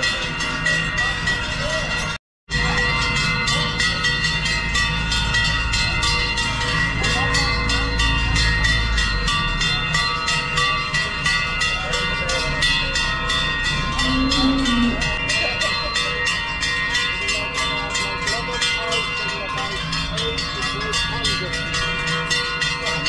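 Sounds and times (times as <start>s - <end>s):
cowbells clanging: 0.0s - 23.0s
cow mooing: 14.0s - 15.1s.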